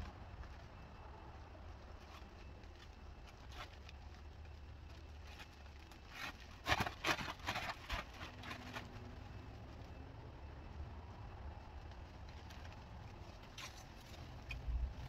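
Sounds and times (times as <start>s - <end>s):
plastic trash bag rustling: 5.0s - 9.1s.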